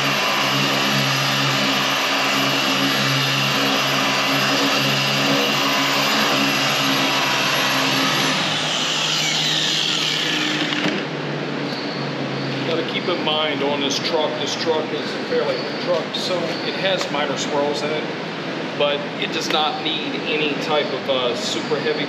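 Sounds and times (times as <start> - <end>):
machine polisher whining: 0.0 - 17.0.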